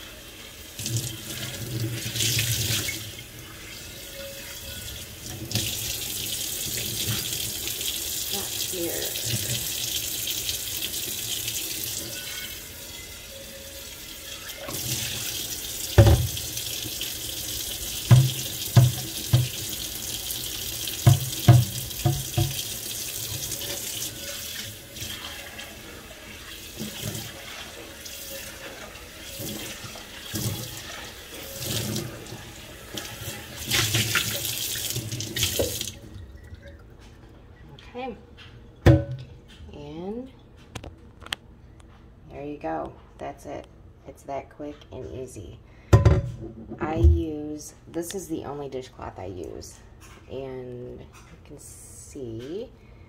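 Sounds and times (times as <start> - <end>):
tap water running into sink: 0.6 - 13.2, 13.8 - 36.8.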